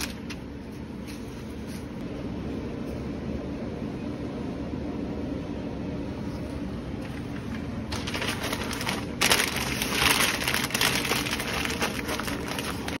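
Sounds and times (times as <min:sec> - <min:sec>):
wrapping paper crinkling: 0:00.0 - 0:00.4, 0:07.0 - 0:13.0
steady low hum: 0:00.0 - 0:13.0.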